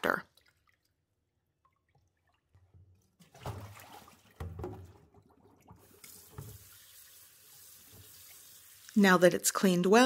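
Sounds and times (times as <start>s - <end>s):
water splashing: 0.0s - 9.2s
tap water running: 0.0s - 10.0s
hands sloshing in water: 0.3s - 5.8s.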